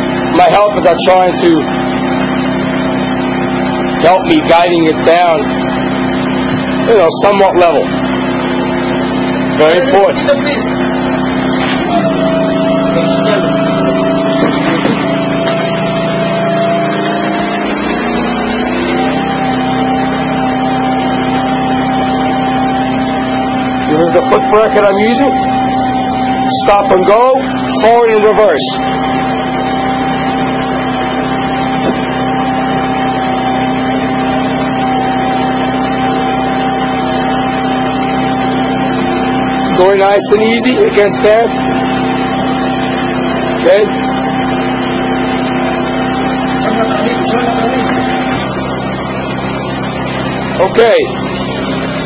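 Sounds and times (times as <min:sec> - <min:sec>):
engine and pump hum: 0:00.0 - 0:52.0
hydraulic drive head whining: 0:10.6 - 0:52.0.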